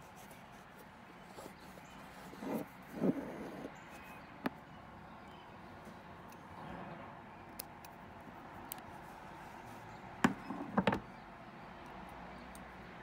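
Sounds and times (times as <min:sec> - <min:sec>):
tools knocking on wooden table: 0:10.2 - 0:11.1.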